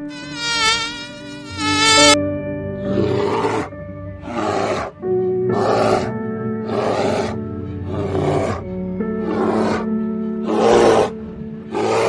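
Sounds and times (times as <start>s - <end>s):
wavering high buzzing tone: 0.0s - 4.0s
background music: 0.0s - 12.0s
bears growling: 2.8s - 12.0s.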